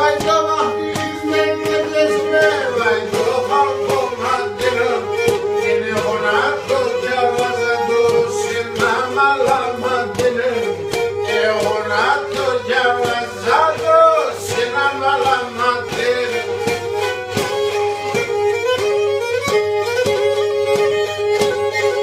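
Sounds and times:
bowed string melody: 0.0s - 22.0s
percussion strokes: 0.0s - 22.0s.

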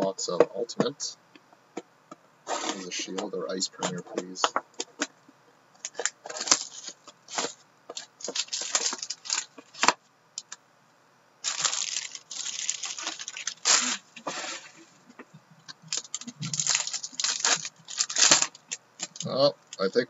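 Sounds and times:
foil pack crinkling and tearing: 2.5s - 3.2s, 5.8s - 10.5s, 11.4s - 14.8s, 15.9s - 19.9s.

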